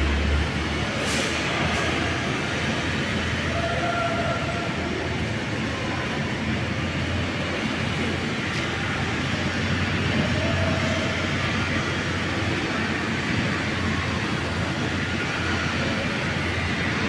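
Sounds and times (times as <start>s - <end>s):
electric crane hoist rumbling: 0.0s - 17.0s.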